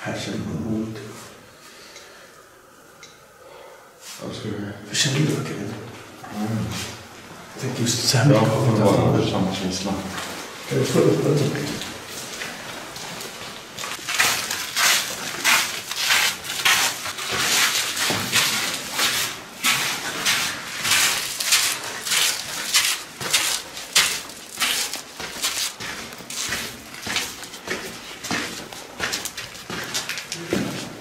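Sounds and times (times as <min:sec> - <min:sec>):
footsteps crunching on grit: 0:10.0 - 0:31.0.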